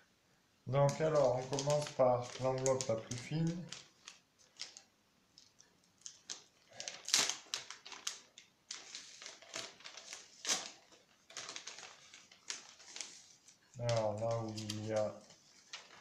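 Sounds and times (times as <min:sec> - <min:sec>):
paper envelope tearing and crinkling: 0:00.8 - 0:16.0.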